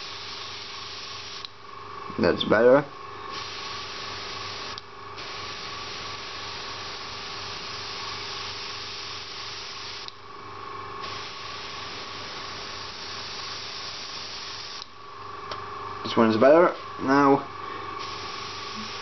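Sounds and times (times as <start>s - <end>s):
airbrush hissing: 0.0s - 1.5s, 3.3s - 10.1s, 11.0s - 14.9s, 18.0s - 19.0s
compressor humming: 0.0s - 19.0s.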